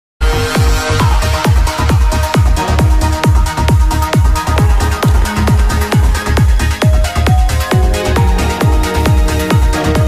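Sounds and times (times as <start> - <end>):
electronic dance music: 0.2 - 10.0
kick drum beating: 1.6 - 8.4.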